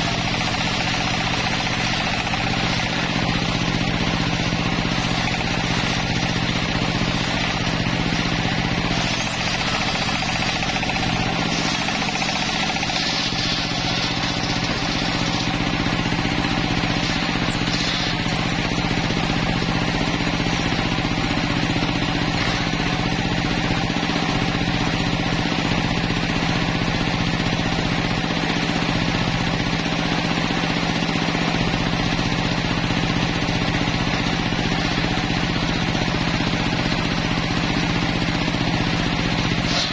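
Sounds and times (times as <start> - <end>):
circular saw cutting log: 0.0 - 25.0, 33.0 - 39.9.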